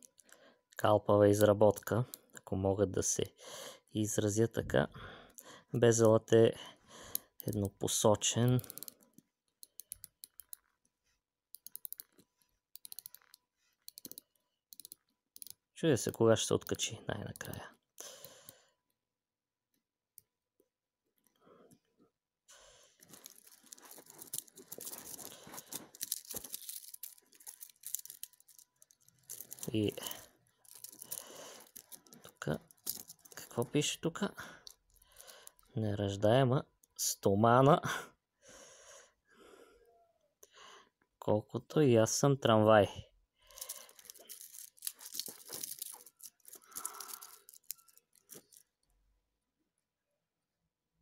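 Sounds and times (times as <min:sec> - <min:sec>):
watch bezel ratcheting clicks: 0:08.4 - 0:09.0, 0:09.6 - 0:10.7, 0:11.6 - 0:12.2, 0:12.8 - 0:15.6, 0:25.9 - 0:30.0
metal watch bracelet rustling: 0:11.6 - 0:15.6, 0:23.0 - 0:33.8, 0:43.5 - 0:48.8
scratchy handling noise: 0:23.0 - 0:33.8, 0:43.6 - 0:48.7.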